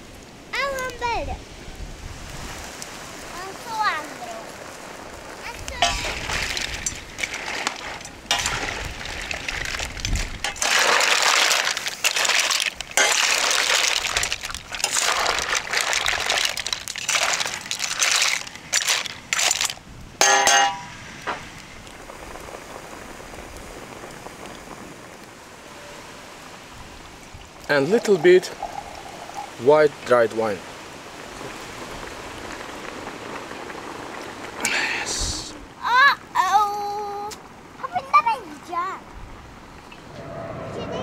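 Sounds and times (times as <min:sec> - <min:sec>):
mussels sizzling in a pan: 0:02.4 - 0:36.0
shells clinking against a pan: 0:18.7 - 0:20.9.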